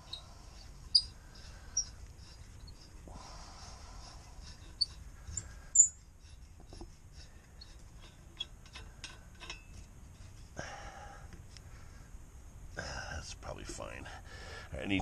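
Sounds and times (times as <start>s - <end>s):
high-pitched metal chirps: 0.9s - 2.0s, 5.8s - 6.0s
metallic clicks and scrapes: 4.4s - 10.5s.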